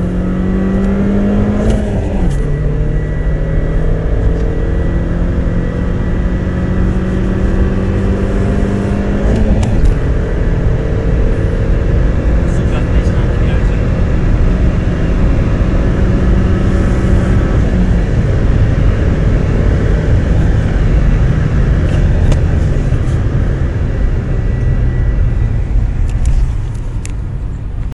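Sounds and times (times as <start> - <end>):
car engine pulling hard: 0.0 - 27.9
road rumble: 0.0 - 28.0
wind noise: 13.3 - 27.9.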